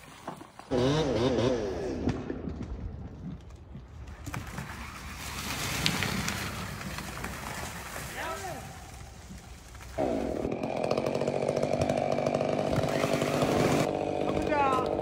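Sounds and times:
chainsaw revving: 0.7s - 2.2s, 9.0s - 15.0s
tree top falling: 4.1s - 13.9s.

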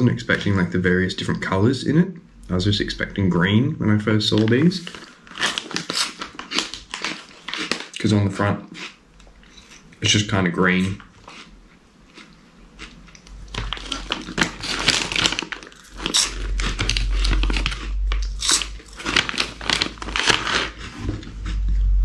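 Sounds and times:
plastic snack bag crinkling: 4.2s - 8.9s, 12.8s - 21.6s
crunching and chewing crisps: 4.2s - 10.2s, 10.8s - 11.5s, 12.1s - 21.8s.

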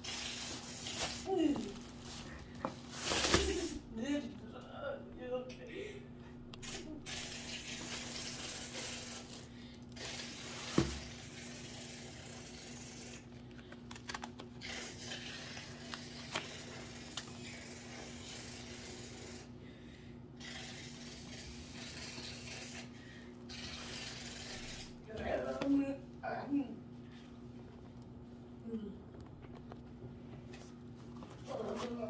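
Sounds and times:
steady low hum: 0.0s - 32.0s
tissue paper and fabric rustling: 0.1s - 3.8s.

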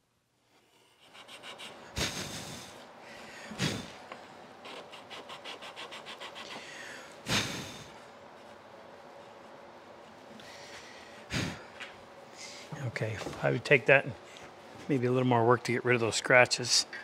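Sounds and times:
sandpaper rubbing in wooden slot: 4.6s - 6.6s.

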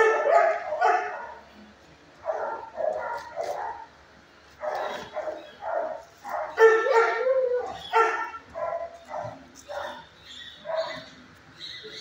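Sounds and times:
dog barking: 0.0s - 1.4s, 2.3s - 3.9s, 4.6s - 10.0s, 10.6s - 11.1s
dog's wavering howl: 6.8s - 7.8s.

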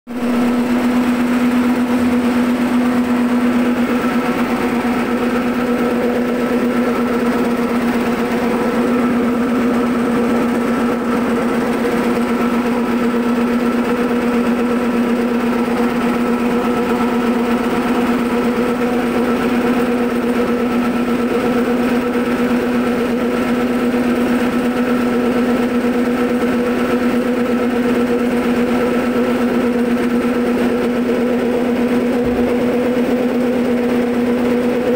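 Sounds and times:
motor humming: 0.1s - 20.3s, 30.4s - 34.7s.

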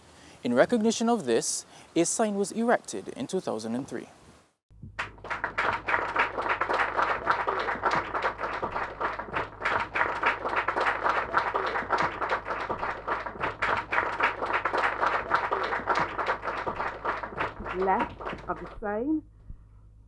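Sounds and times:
low hum: 4.8s - 20.0s
crowd applauding: 5.0s - 18.8s.

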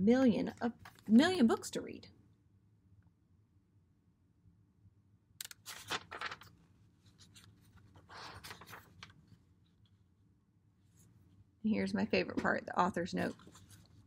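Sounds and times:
book pages flipping: 0.8s - 1.2s, 5.4s - 9.9s, 13.2s - 14.0s.

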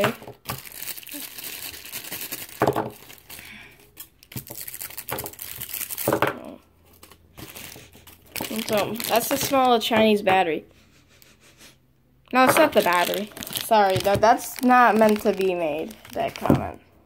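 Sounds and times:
plastic bags crinkling: 0.0s - 10.5s, 12.3s - 16.9s.

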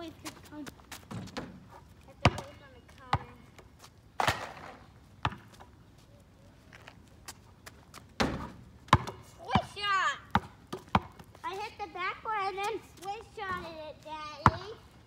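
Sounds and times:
basketball bouncing on asphalt: 0.0s - 5.8s, 7.2s - 11.7s, 14.3s - 14.8s
young child's voice: 9.4s - 10.4s, 11.4s - 15.0s.

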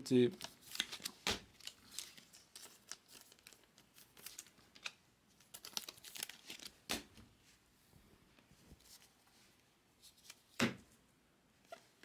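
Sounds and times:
trading cards clicking and rustling: 0.3s - 7.1s.

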